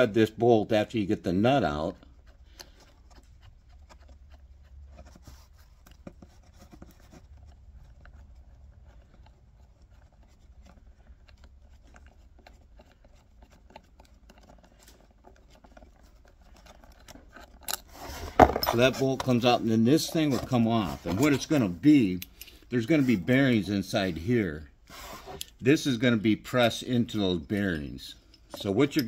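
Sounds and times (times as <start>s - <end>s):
metal parts handled: 12.4s - 22.8s, 27.8s - 29.0s.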